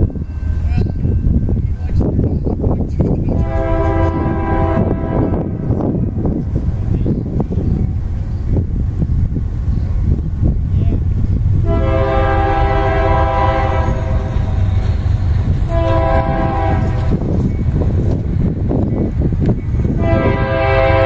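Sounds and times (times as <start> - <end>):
steady low rumble: 0.0 - 21.0
locomotive air horn blasts: 3.3 - 6.2, 11.6 - 14.9, 15.6 - 17.2, 20.0 - 21.0.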